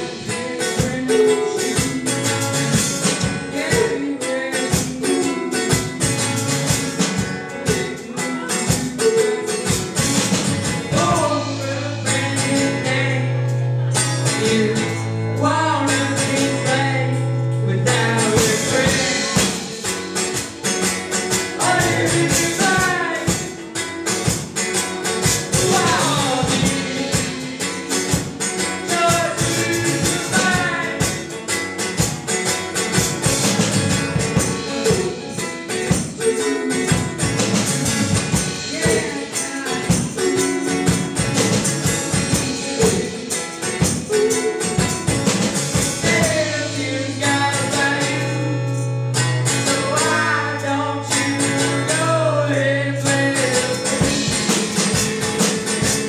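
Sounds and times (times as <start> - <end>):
man singing: 0.0 - 31.6, 34.3 - 48.8, 49.5 - 56.0
drum kit: 0.0 - 56.0
strummed acoustic guitar: 0.0 - 56.0
woman singing: 25.5 - 31.1.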